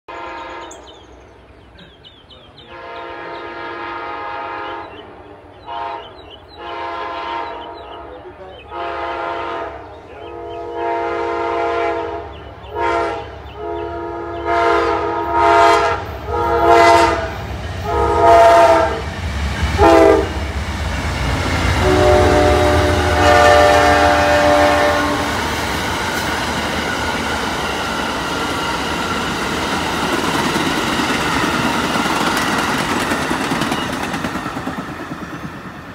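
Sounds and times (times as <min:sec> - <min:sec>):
locomotive air horn blasts: 0:00.1 - 0:00.9, 0:02.6 - 0:04.9, 0:05.6 - 0:19.1, 0:19.8 - 0:20.4, 0:21.5 - 0:25.4
train wheels rumbling and clacking: 0:12.2 - 0:35.9.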